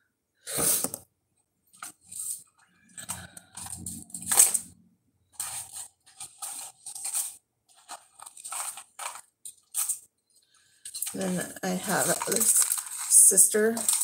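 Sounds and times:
cardboard box rustling and scraping: 5.4 - 9.9, 10.9 - 14.0.

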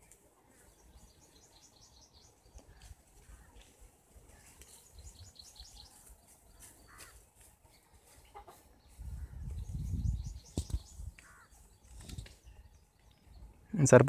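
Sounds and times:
hen clucking: 8.1 - 8.8.

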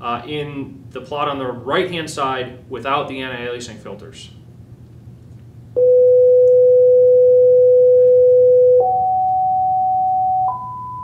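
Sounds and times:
sine test tone from loudspeaker: 5.8 - 11.0.

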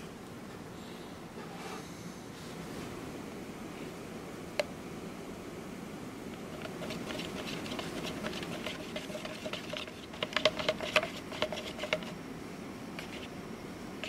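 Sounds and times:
stir stick scraping plastic cup: 6.5 - 12.2, 13.0 - 13.3.

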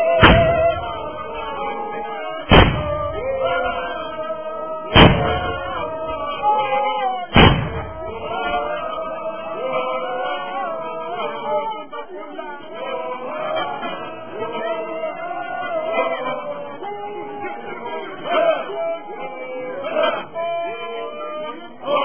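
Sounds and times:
group of voices singing: 0.0 - 22.0
loud sharp bangs: 0.2 - 1.3, 2.4 - 3.3, 4.9 - 6.1, 7.3 - 8.2.

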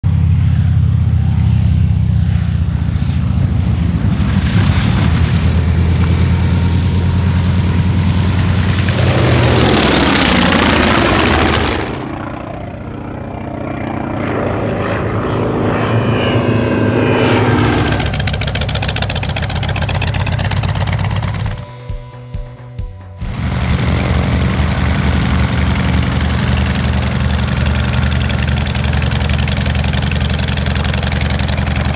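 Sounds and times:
aircraft flyby: 0.0 - 31.9
deep propeller engine drone: 0.0 - 31.9
engine running with even pulse: 0.0 - 31.9.

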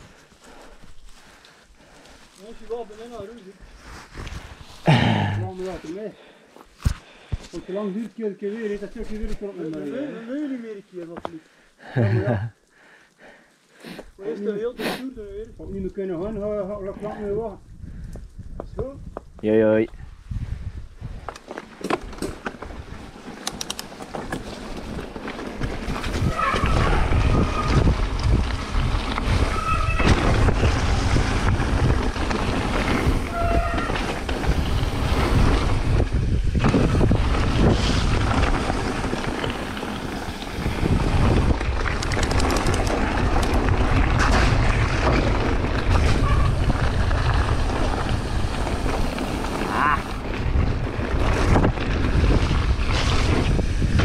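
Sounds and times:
wind buffeting microphone: 15.5 - 21.4, 24.8 - 54.0
bike rumbling and rattling: 15.6 - 54.0.

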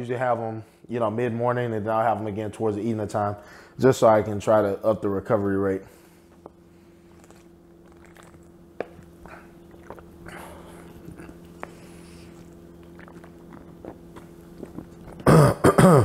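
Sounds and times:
faint steady hum: 0.0 - 16.0
man gulping a drink: 6.5 - 11.7, 12.3 - 16.0.

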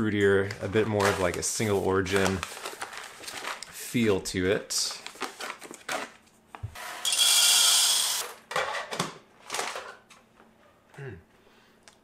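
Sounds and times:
paper bag rustling: 0.4 - 3.8, 4.9 - 6.2.

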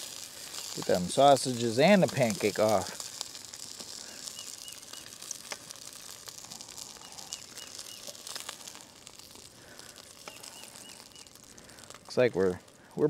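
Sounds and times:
food frying in skillet: 0.0 - 13.0
bird calling: 4.0 - 5.2, 6.9 - 8.5, 10.2 - 11.4.

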